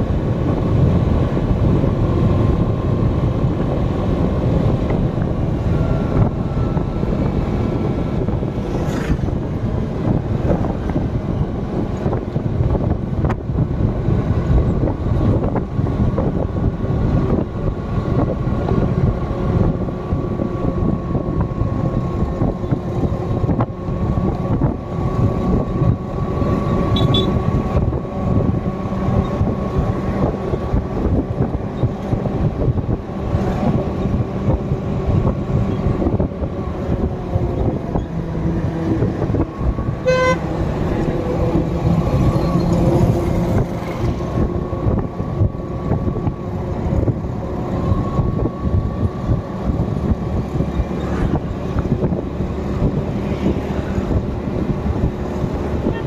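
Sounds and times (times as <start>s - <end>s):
vehicle engine and road noise: 0.0s - 56.0s
car horn toot: 26.9s - 27.4s, 40.0s - 40.4s.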